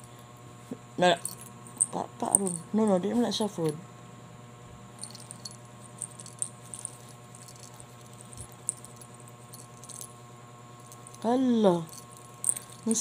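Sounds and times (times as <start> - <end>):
steady low hum: 0.0 - 13.0
cat collar jingling: 5.0 - 10.1, 10.8 - 13.0.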